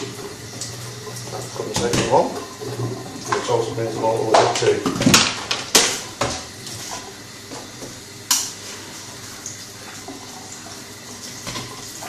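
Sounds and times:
tap running into steel sink: 1.3 - 3.6.

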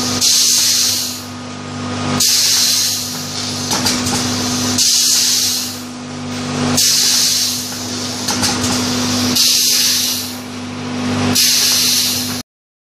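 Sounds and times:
machine hum: 0.0 - 12.4
compressed air hiss: 0.2 - 1.3, 2.2 - 5.8, 6.8 - 10.4, 11.3 - 12.4.

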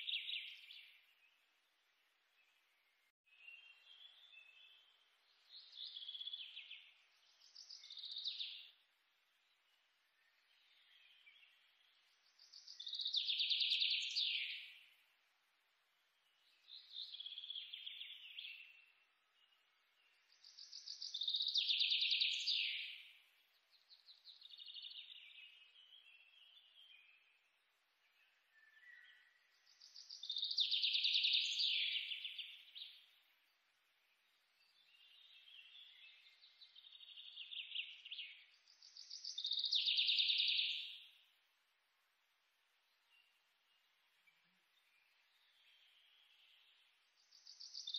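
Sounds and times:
bird chirping: 0.0 - 15.2, 16.0 - 47.9
bird song trilled phrases: 3.3 - 8.8, 10.2 - 15.0, 16.2 - 33.3, 34.6 - 41.3, 42.9 - 47.9.

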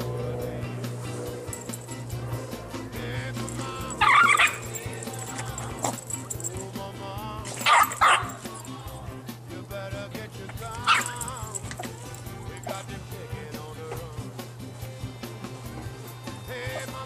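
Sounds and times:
background music: 0.0 - 17.0
small dog barking: 3.6 - 6.3, 7.6 - 8.6, 10.7 - 12.8.

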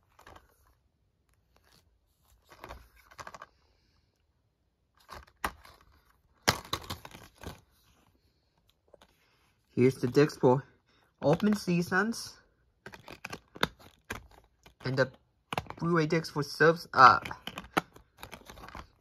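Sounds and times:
plastic case clicks and rustles: 2.4 - 3.5, 5.0 - 7.7, 11.2 - 11.8, 12.8 - 15.9, 17.1 - 19.0
plastic case snapping open: 6.4 - 7.6, 12.8 - 14.8, 15.5 - 15.8, 17.2 - 19.0.

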